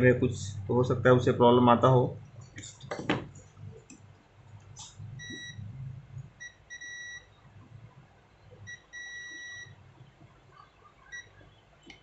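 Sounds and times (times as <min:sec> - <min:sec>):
multimeter continuity beeps: 0:05.2 - 0:05.7, 0:06.4 - 0:07.3, 0:08.6 - 0:09.8.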